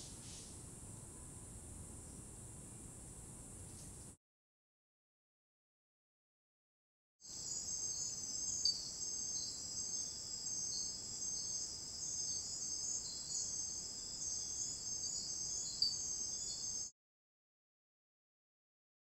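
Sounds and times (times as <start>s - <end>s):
insects trilling: 7.3s - 16.9s.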